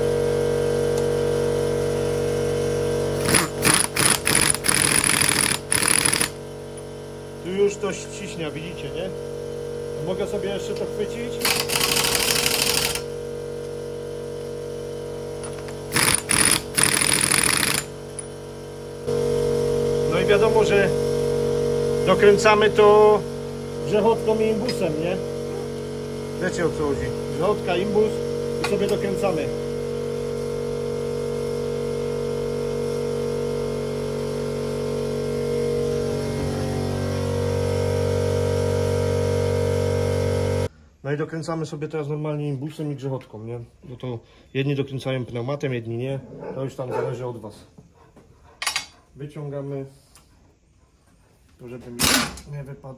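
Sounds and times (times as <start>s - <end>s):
steady mechanical hum: 0.0s - 52.9s
power tool bursts: 3.1s - 6.5s, 11.4s - 13.1s, 15.8s - 18.3s, 52.0s - 52.4s.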